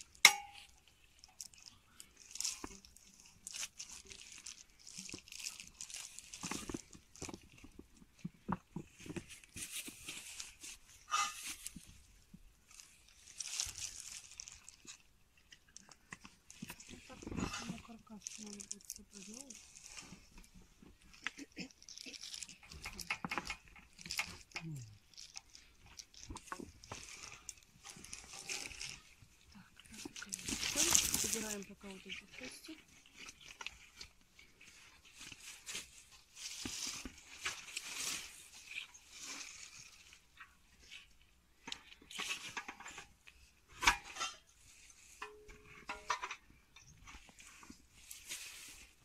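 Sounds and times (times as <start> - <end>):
vinyl liner crinkling: 0.0 - 12.0, 12.6 - 44.0
plastic poles clicking and knocking: 0.1 - 1.4, 22.3 - 27.1, 45.1 - 47.4.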